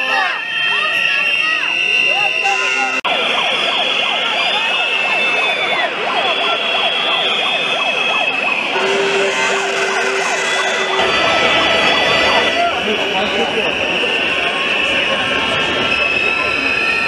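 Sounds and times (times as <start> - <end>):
whistles and noisemakers: 0.0 - 17.0
high whistle note: 6.6 - 15.2
steady low horn note: 8.7 - 13.6.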